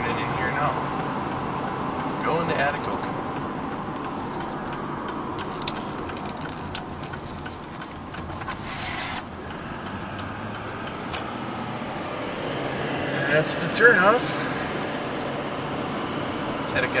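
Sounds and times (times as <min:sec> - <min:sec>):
engine and road noise: 0:00.0 - 0:17.0.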